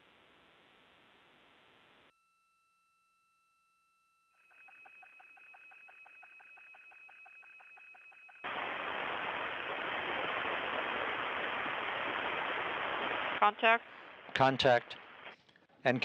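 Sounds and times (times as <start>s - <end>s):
loud static hiss: 8.4s - 15.4s
radio static: 8.4s - 15.4s.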